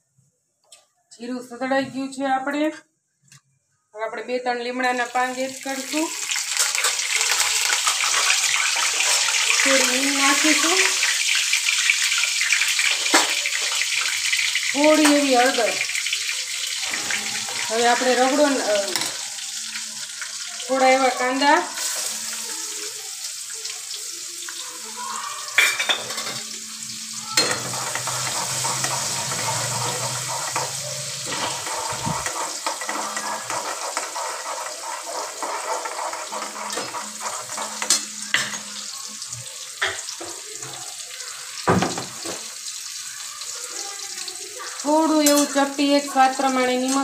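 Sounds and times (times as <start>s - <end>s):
onions sizzling in hot oil: 4.8s - 47.0s
ladle scraping pan: 27.4s - 38.7s.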